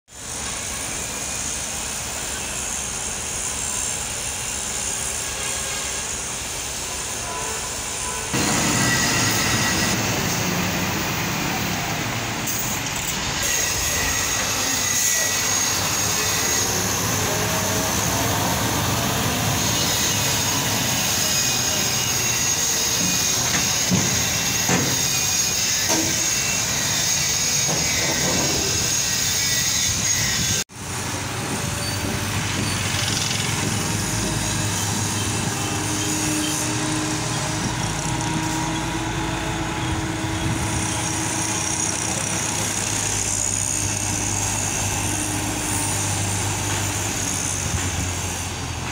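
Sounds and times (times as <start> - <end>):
high-pitched whine: 0.2 - 23.4.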